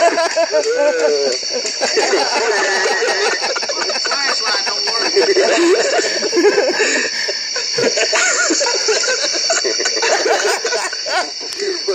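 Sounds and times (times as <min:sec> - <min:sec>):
people giggling and laughing: 0:00.0 - 0:11.9
steady high-pitched whine: 0:00.0 - 0:11.9.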